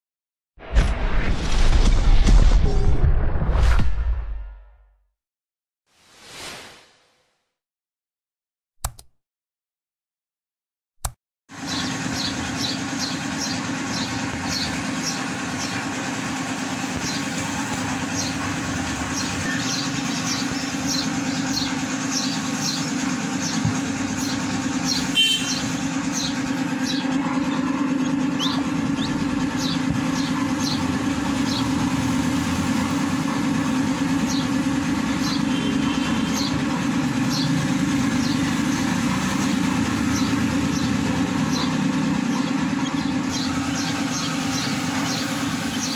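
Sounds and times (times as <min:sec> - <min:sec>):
loud mechanical hum: 0:11.5 - 0:45.9
ducklings and chicks peeping: 0:19.1 - 0:31.8.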